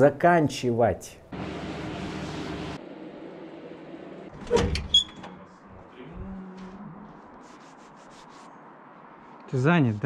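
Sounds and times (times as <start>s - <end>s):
door creaking: 4.3s - 5.4s.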